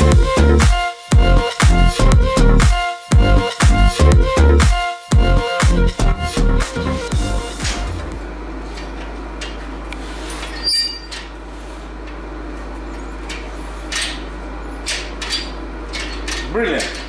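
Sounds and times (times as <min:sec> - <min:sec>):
steady low hum: 0:00.0 - 0:17.0
metal clank with ring: 0:10.4 - 0:11.3.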